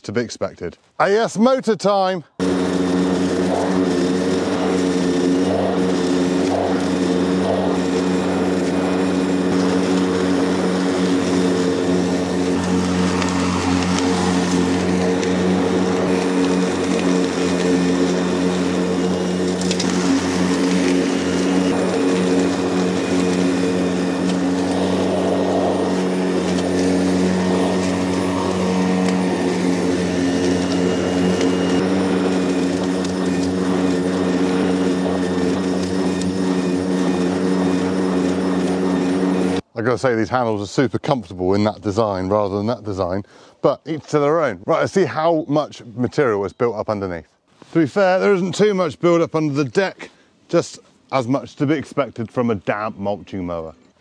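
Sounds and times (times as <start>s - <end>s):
lawnmower motor humming: 2.3s - 39.7s
hiss of mulching grass: 2.4s - 39.6s.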